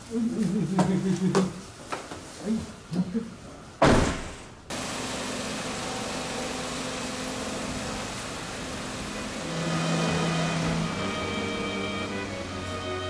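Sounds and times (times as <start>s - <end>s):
car engine idling: 4.7s - 13.0s.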